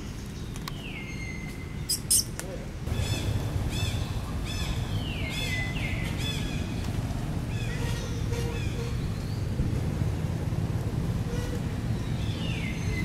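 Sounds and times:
low steady rumble: 2.7 - 13.0.

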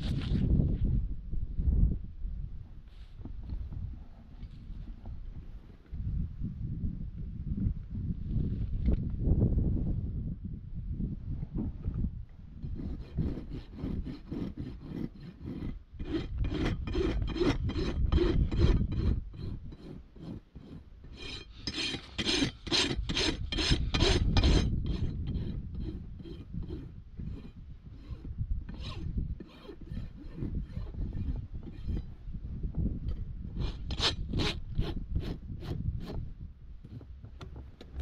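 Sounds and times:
hoof rasp filing a hoof: 12.6 - 32.3, 33.5 - 37.1.

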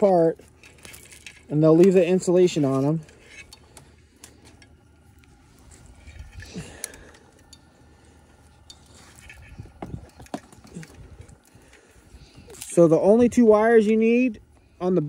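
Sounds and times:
wires clicking and rustling: 0.0 - 14.3
wind rumble on microphone: 9.2 - 13.7.

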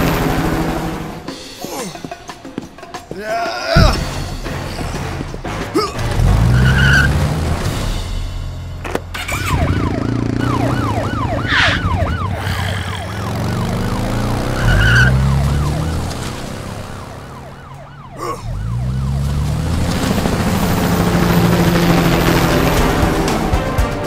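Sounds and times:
police siren yelping: 9.2 - 22.9.

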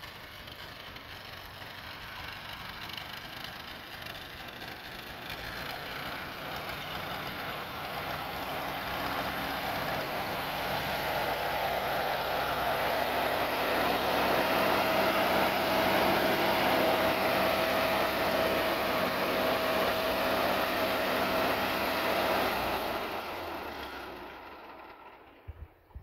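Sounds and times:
engine winding down: 0.0 - 26.0
tractor engine running: 0.0 - 26.0.

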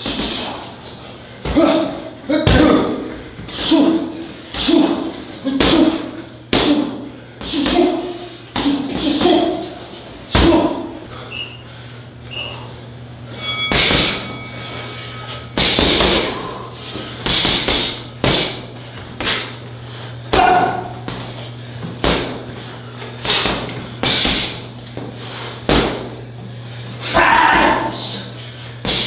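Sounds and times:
strikes thudding on heavy bag: 25.7 - 26.1.

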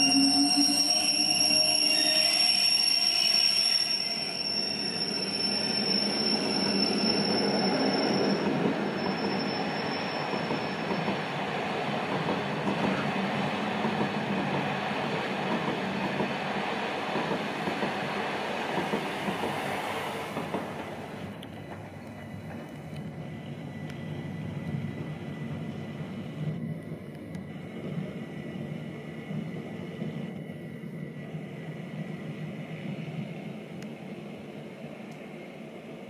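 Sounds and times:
high steady squeal: 0.0 - 11.2
train wheels rumbling on rail: 3.8 - 36.0.

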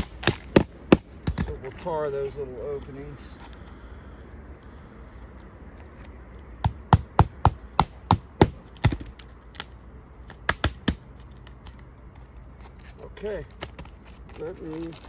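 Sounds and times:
hammer striking nails: 0.0 - 1.5, 6.6 - 9.1, 10.4 - 11.0.

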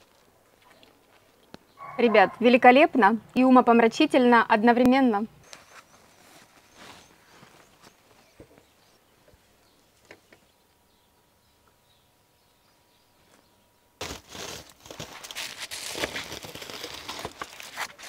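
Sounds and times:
aluminium foil crinkling: 14.0 - 18.0.

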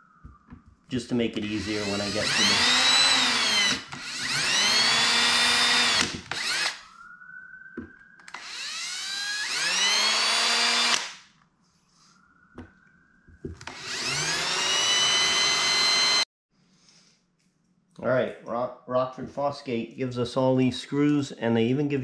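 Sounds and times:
cordless drill motor whine: 1.5 - 6.9, 7.8 - 11.2, 13.5 - 16.3.

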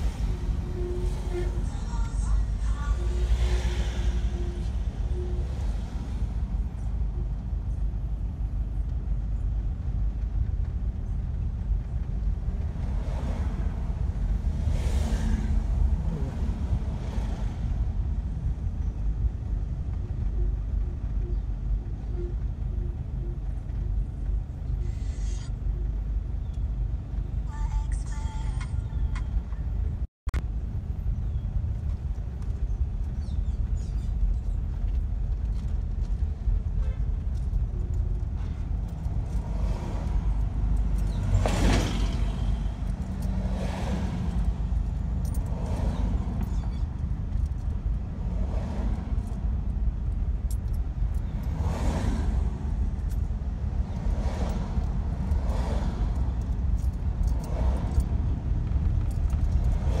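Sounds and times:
vehicles swishing past: 0.0 - 7.1, 11.7 - 19.1, 37.4 - 60.0
car engine and road rumble: 0.0 - 60.0.

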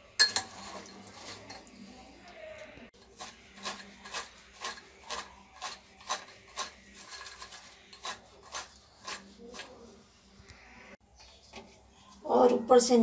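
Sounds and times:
fried potatoes tossed in bowl: 0.3 - 2.0, 2.9 - 10.0.

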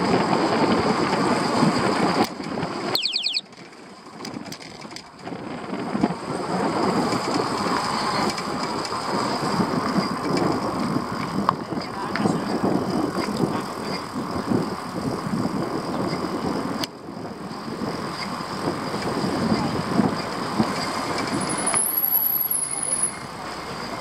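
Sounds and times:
road rumble: 0.0 - 24.0
high squeal: 3.0 - 3.4
wind buffeting microphone: 4.2 - 21.6.

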